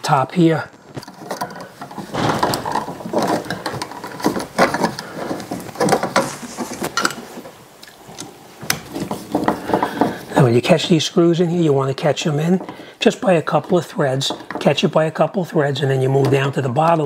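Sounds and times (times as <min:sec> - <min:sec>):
plastic and metal clicks and rattles: 0:00.8 - 0:07.3.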